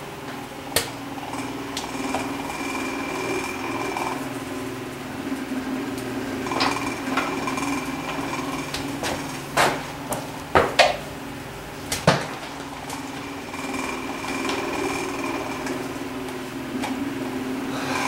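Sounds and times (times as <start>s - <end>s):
steady machine hum: 0.0s - 18.0s.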